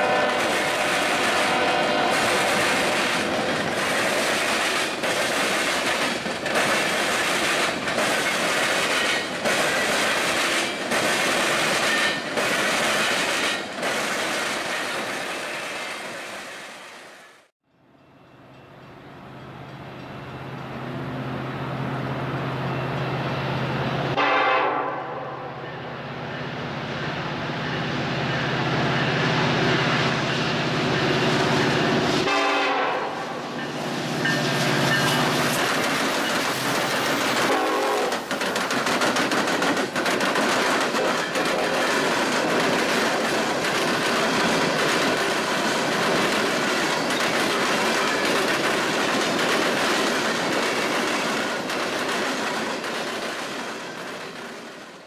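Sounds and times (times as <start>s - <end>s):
train horn: 0.0s - 3.2s, 24.1s - 25.9s, 32.2s - 33.5s, 37.4s - 38.2s
diesel locomotive engine drone: 0.0s - 55.0s
wheels clicking over rail joints: 33.6s - 54.9s.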